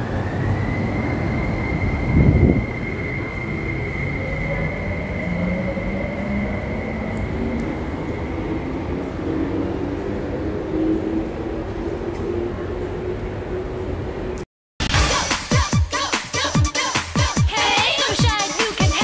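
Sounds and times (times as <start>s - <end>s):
electric train accelerating whine: 0.0s - 19.0s.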